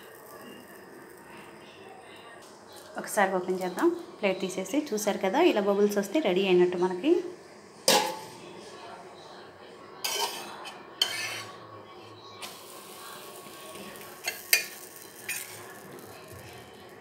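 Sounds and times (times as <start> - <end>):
batter sizzling: 0.0 - 4.0, 10.0 - 11.6, 12.2 - 17.0
spatula scraping griddle: 10.0 - 11.6, 12.4 - 16.7.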